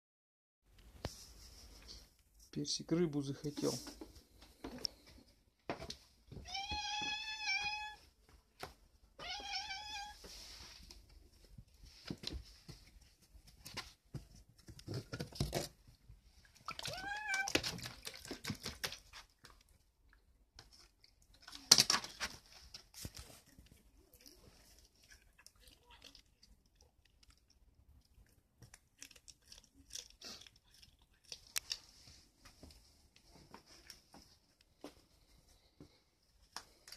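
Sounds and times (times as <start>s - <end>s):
cat meowing: 6.4s - 8.0s, 9.2s - 10.2s, 16.7s - 17.7s.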